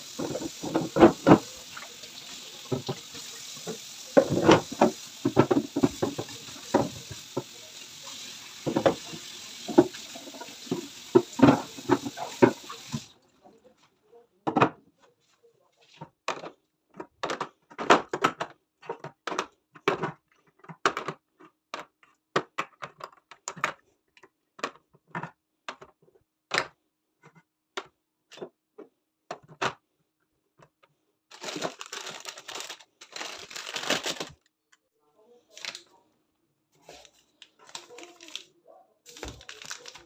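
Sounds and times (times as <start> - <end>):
plastic packets crinkling: 0.0 - 7.7, 31.3 - 34.6, 35.5 - 36.0, 36.8 - 38.5, 39.1 - 40.0.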